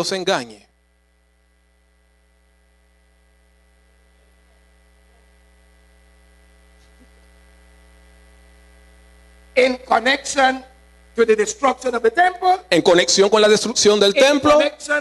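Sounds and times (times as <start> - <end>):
faint mains hum: 0.0 - 15.0.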